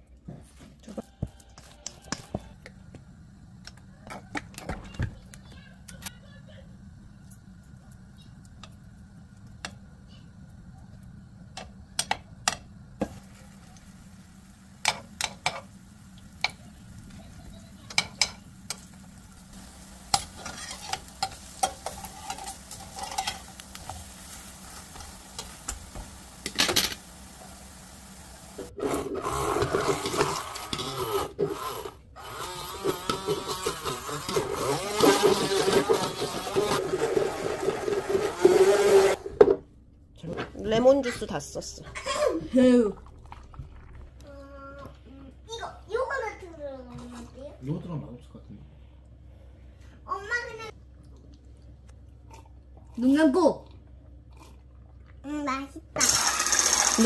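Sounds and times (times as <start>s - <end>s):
oil sizzling: 1.6s - 39.6s, 55.9s - 57.0s
metal spoon scraping a pan: 20.0s - 25.8s, 28.8s - 31.9s, 32.7s - 39.2s
hand blender grinding: 28.6s - 39.3s, 56.0s - 57.0s.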